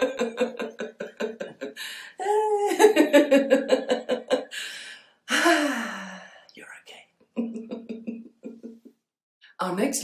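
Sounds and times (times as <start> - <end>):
woman laughing: 0.0 - 4.6, 7.4 - 9.0.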